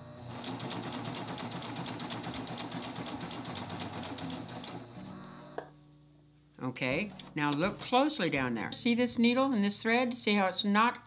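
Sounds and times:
serger stitching: 0.3 - 4.8.

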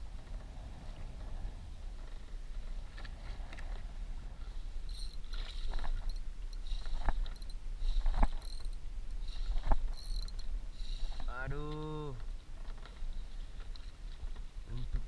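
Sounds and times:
wind rumbling on microphone: 0.0 - 15.0
spinning reel buzzing: 4.8 - 11.1.

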